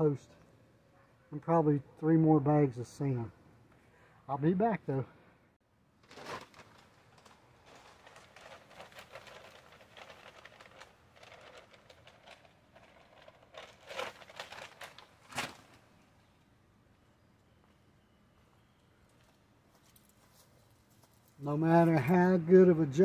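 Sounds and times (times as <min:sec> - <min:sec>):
plastic bag crinkling: 0:06.0 - 0:15.9.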